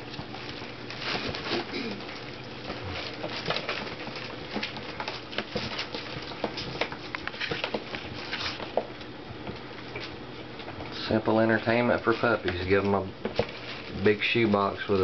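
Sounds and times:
plastic sheet crinkling: 9.9 - 15.0.

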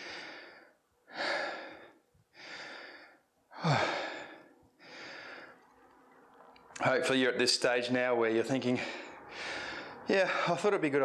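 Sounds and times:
man breathing hard: 0.0 - 5.7, 8.7 - 10.6
man sighing: 3.5 - 4.3.

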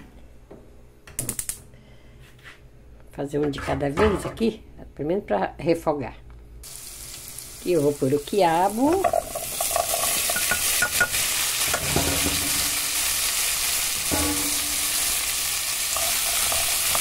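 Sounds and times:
okra sizzling in hot fat: 6.6 - 17.0.

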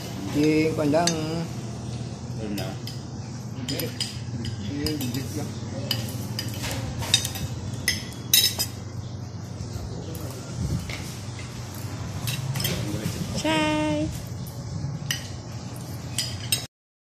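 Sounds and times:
steady low hum: 0.0 - 16.7
cutlery clinking on plates: 2.5 - 8.8, 10.8 - 13.2, 15.0 - 16.7.

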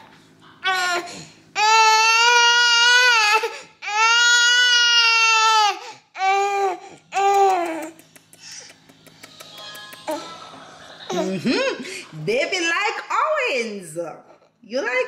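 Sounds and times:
infant crying: 0.6 - 7.9.

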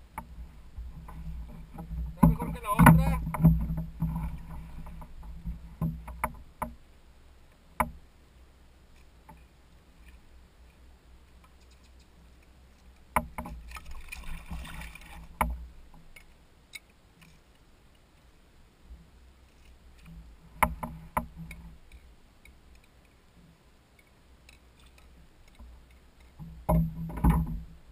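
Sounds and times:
rustling and scraping: 0.0 - 6.6, 8.9 - 16.4, 19.3 - 22.1, 22.8 - 27.9
faint low rumble: 0.0 - 27.9
clicks and knocks of fish handling: 24.0 - 27.7.

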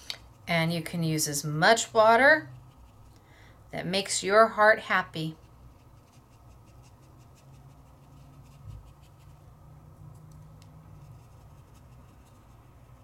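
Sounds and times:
steady low hum: 0.0 - 13.0
paintbrush scratching on paper: 2.4 - 3.1, 5.3 - 9.5, 10.8 - 13.0.

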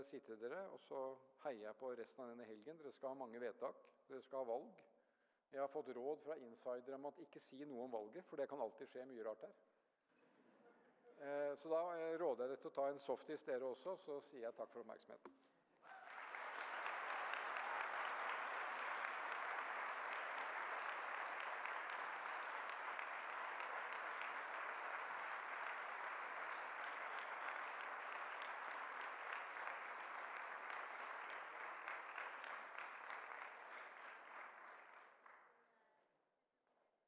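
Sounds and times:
audience applauding: 15.8 - 35.4.

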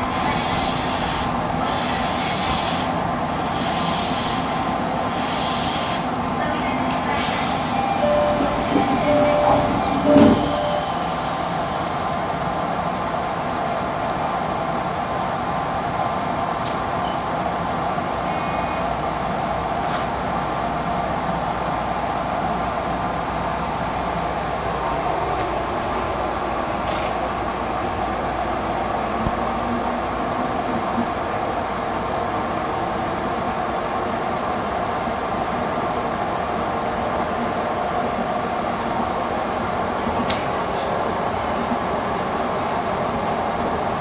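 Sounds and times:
train running: 0.0 - 44.0
rushes of hiss: 0.1 - 6.2.

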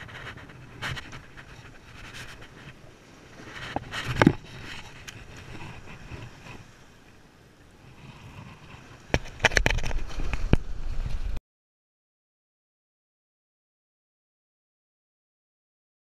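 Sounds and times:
wind rumbling on microphone: 0.0 - 11.4.

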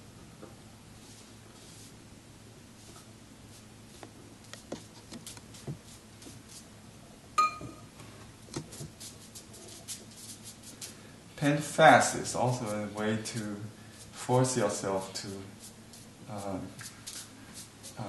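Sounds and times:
brush tapping and scratching paper: 3.9 - 6.6, 8.5 - 10.9, 12.0 - 13.6, 14.2 - 18.0
bright ringing clink: 7.4 - 7.9.

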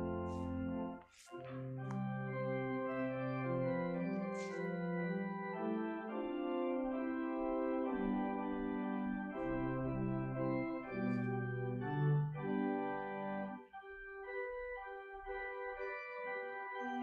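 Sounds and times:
organ playing slow chords: 0.0 - 17.0.

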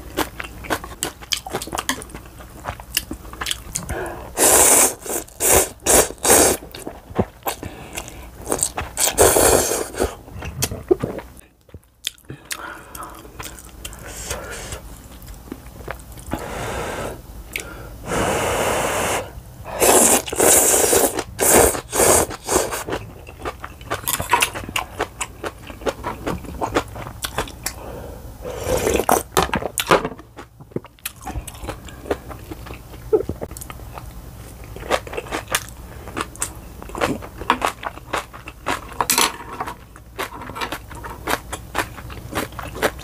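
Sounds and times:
noisy slurping of noodles: 4.4 - 6.6, 8.5 - 10.2, 18.1 - 22.9.

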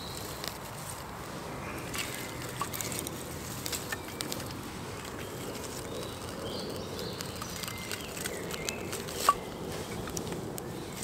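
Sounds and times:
fire crackling: 0.0 - 11.0
rustle of wood shavings: 0.0 - 11.0.

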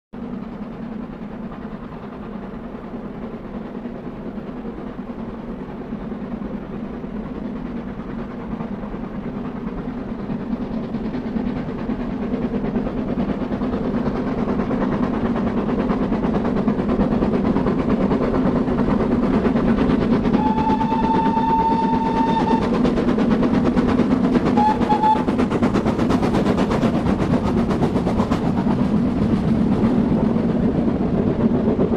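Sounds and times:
steam locomotive exhaust beats: 0.2 - 31.9
train coaches rolling past: 0.2 - 31.9
steam whistle blasts: 20.4 - 22.8, 24.6 - 25.4.

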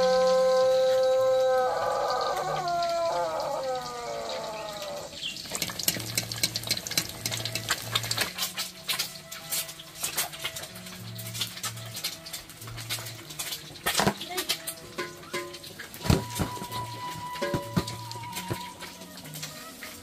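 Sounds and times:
background music: 0.0 - 20.0
egg frying in hot oil: 0.0 - 20.0.

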